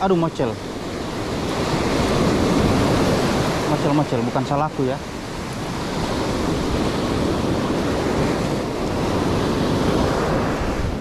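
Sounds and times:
sea surf breaking: 0.0 - 11.0.

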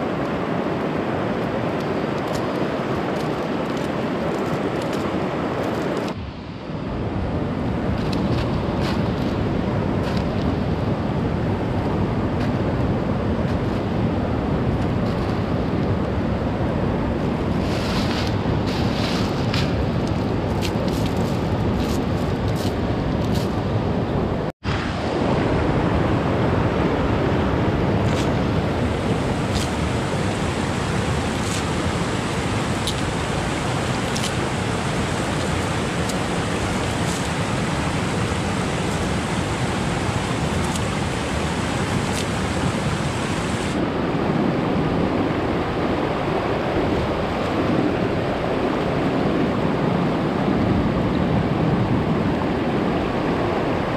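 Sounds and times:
river water over stones: 0.0 - 6.2, 24.7 - 44.1.

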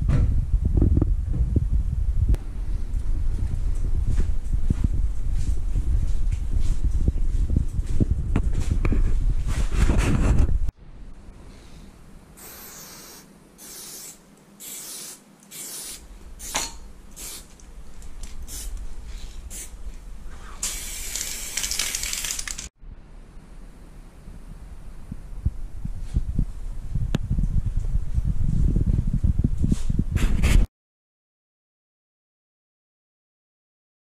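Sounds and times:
spray paint can hissing: 12.4 - 17.5, 18.4 - 18.8, 19.5 - 19.7, 20.6 - 22.7.

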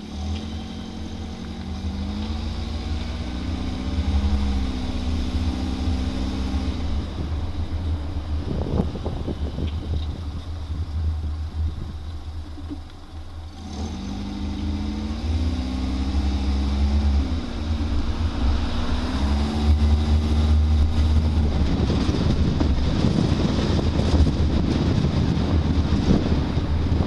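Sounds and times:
car engine hum: 0.0 - 27.0
road rumble: 0.0 - 27.0
wind buffeting microphone: 2.8 - 12.9, 15.5 - 27.0.

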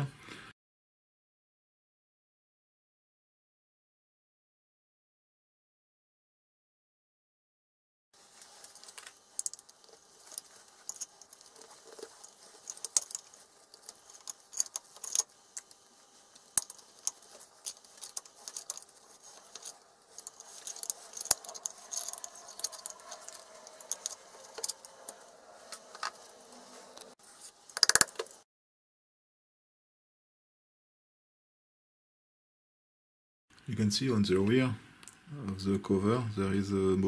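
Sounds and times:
metal parts clicking and clinking: 8.4 - 27.1, 27.7 - 28.4.

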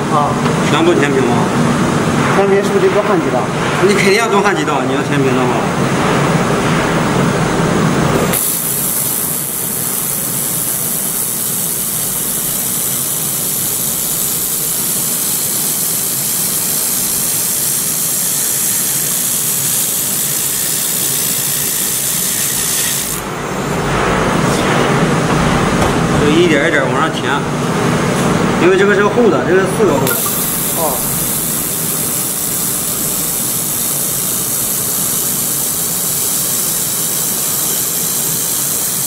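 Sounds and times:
laser welder hissing: 8.2 - 23.7, 30.0 - 39.0.

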